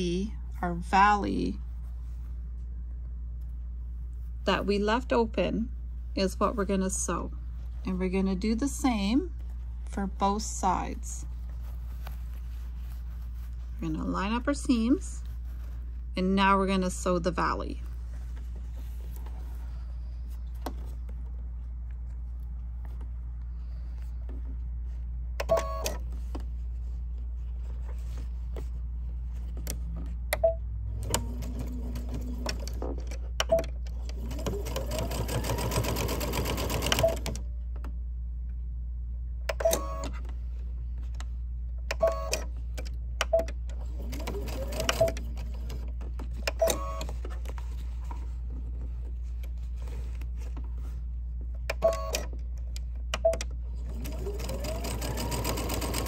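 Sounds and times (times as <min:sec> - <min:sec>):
sewing machine stitching: 0:34.1 - 0:37.4, 0:43.9 - 0:45.8, 0:53.8 - 0:56.0.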